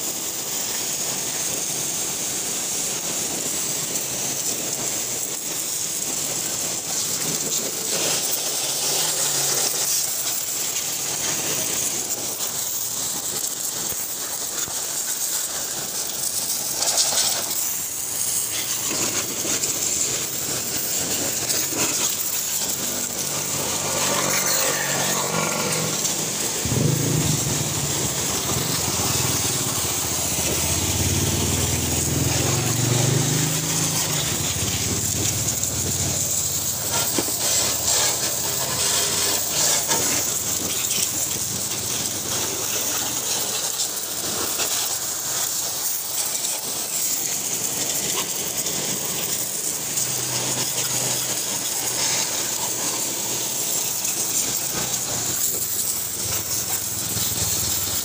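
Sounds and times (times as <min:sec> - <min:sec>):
pressure washer jet hissing: 0:00.0 - 0:58.0
spray spattering on surfaces: 0:00.0 - 0:58.0
low hum: 0:26.6 - 0:30.0.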